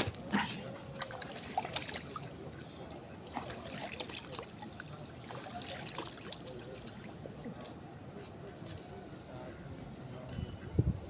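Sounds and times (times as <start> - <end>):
river water splashing and trickling: 0.0 - 8.2.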